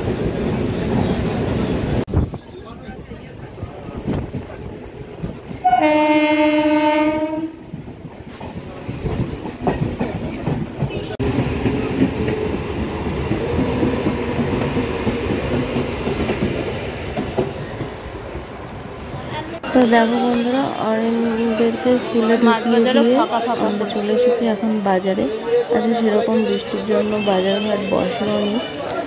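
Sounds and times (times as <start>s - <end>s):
train rumbling on rails: 0.0s - 29.0s
train horn blast: 5.6s - 7.6s.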